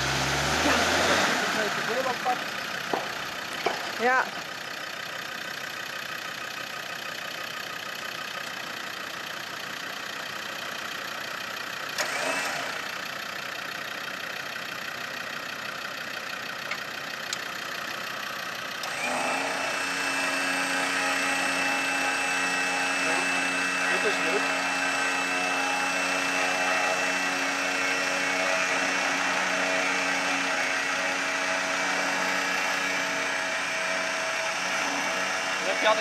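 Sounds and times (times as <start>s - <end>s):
engine idling: 0.0s - 36.0s
electric winch motor whining: 11.9s - 13.0s, 18.8s - 36.0s.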